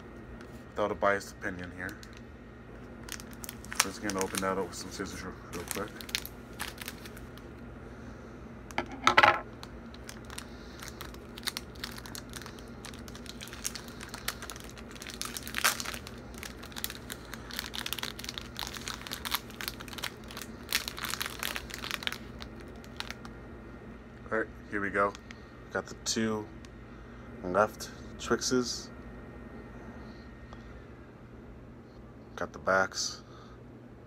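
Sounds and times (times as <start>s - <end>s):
plastic wrapper crinkling and tearing: 1.8s - 7.6s, 9.6s - 23.3s.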